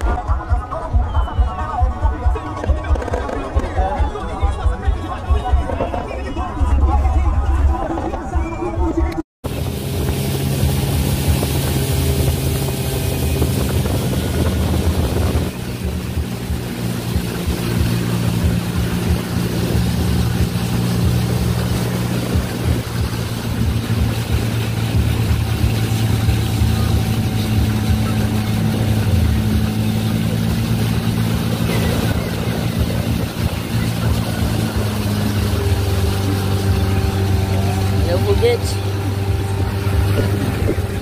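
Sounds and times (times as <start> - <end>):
boat engine droning: 0.0 - 41.0
water rushing along hull: 0.0 - 41.0.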